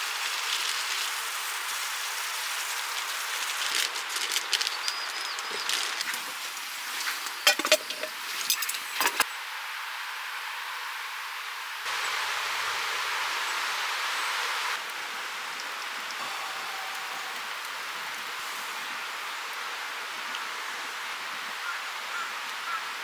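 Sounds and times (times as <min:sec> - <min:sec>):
steady hiss: 0:00.0 - 0:23.0
tableware and utensils clinking: 0:07.4 - 0:09.2.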